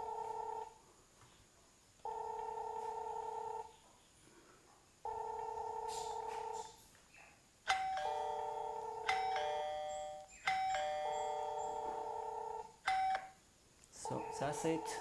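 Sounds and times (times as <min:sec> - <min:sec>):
buzzy electronic doorbell ring: 0:07.7 - 0:13.4
higher ring tone: 0:07.7 - 0:13.4.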